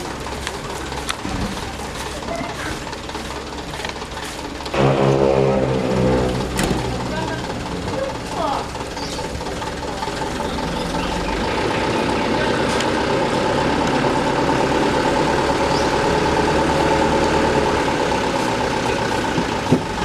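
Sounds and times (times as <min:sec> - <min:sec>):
diesel truck engine running: 0:00.0 - 0:20.0
hydraulic hoist whine: 0:04.6 - 0:12.1.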